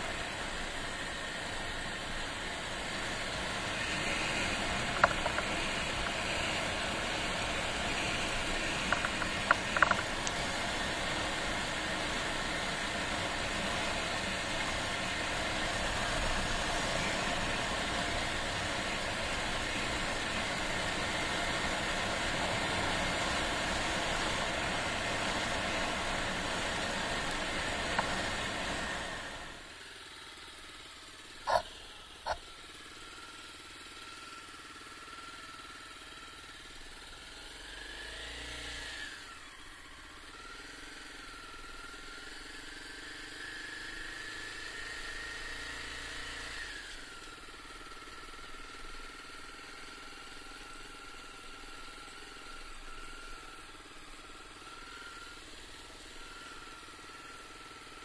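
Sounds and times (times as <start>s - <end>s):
wind and road noise: 0.0s - 29.6s
faint steady whine: 0.0s - 37.7s, 39.1s - 58.0s
motorcycle engine running: 0.0s - 58.0s.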